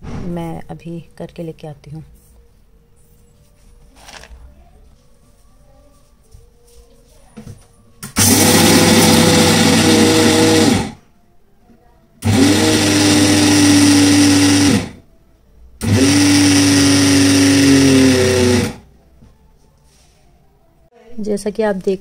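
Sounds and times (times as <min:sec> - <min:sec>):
mixer grinder motor grinding: 0:08.1 - 0:11.0, 0:12.2 - 0:15.0, 0:15.8 - 0:18.9.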